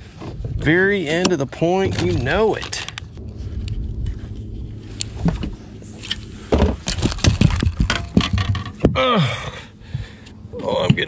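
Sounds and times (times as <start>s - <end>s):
man groaning: 8.9s - 9.7s.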